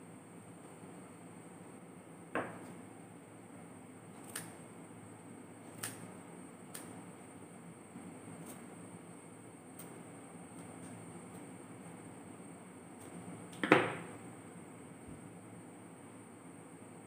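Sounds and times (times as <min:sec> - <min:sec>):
scissors snipping yarn: 0:05.7 - 0:06.1.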